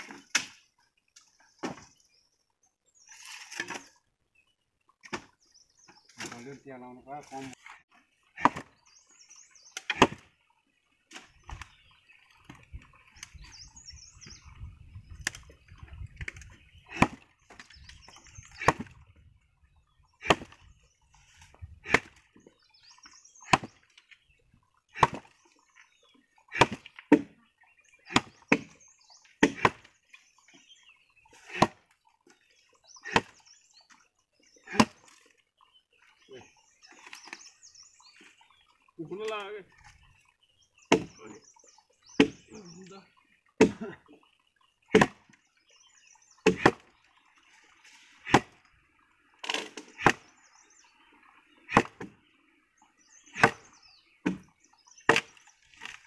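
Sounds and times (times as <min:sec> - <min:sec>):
axe chopping wood: 0:00.0 - 0:00.6, 0:01.6 - 0:01.9, 0:05.0 - 0:05.4, 0:08.4 - 0:08.8, 0:09.8 - 0:10.3, 0:16.2 - 0:17.7, 0:18.6 - 0:19.0, 0:20.2 - 0:20.6, 0:21.8 - 0:22.2, 0:23.4 - 0:23.8, 0:25.0 - 0:25.3, 0:26.5 - 0:27.4, 0:28.1 - 0:28.8, 0:29.4 - 0:29.9, 0:31.4 - 0:31.8, 0:33.0 - 0:33.4, 0:34.7 - 0:35.0, 0:40.9 - 0:41.2, 0:42.2 - 0:42.5, 0:43.6 - 0:44.0, 0:44.9 - 0:45.4, 0:46.4 - 0:46.9, 0:48.2 - 0:48.6, 0:49.4 - 0:50.3, 0:51.7 - 0:52.2, 0:53.3 - 0:56.0.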